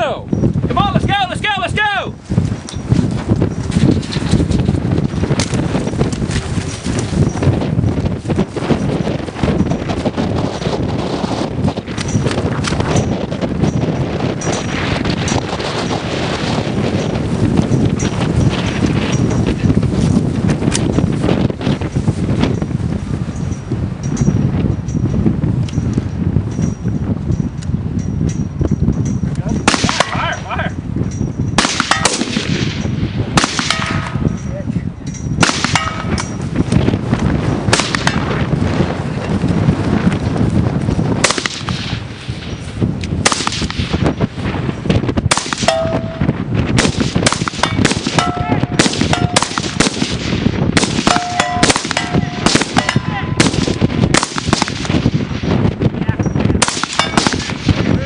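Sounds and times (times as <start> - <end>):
rifle shots: 29.6 - 30.3, 31.6 - 34.2, 35.4 - 36.2, 37.7 - 38.3, 41.2 - 42.0, 43.2 - 44.0, 45.3 - 46.2, 46.8 - 55.2, 56.6 - 57.9
ringing ding of steel target: 45.7 - 46.4, 47.6 - 49.5, 51.1 - 53.4, 57.0 - 57.2.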